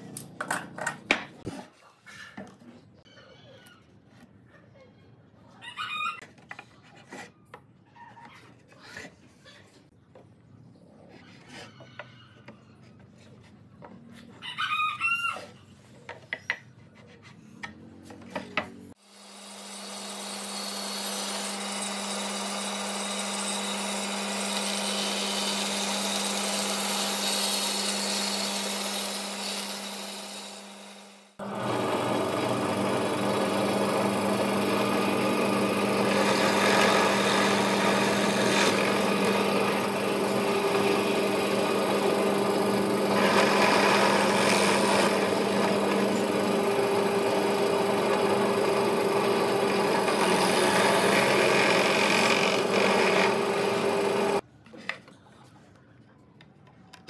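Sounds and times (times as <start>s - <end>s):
rooster crowing: 5.6s - 6.2s, 14.4s - 15.5s
bandsaw cutting wood: 18.9s - 54.4s
drill press boring wood: 19.3s - 54.4s.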